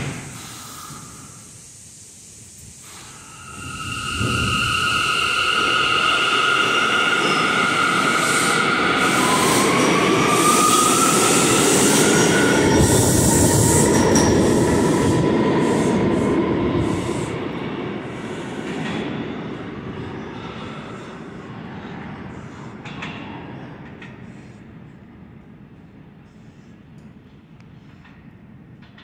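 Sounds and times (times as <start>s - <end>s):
train propulsion whine: 0.0s - 22.7s
steel wheels rumbling on rail: 0.0s - 24.8s.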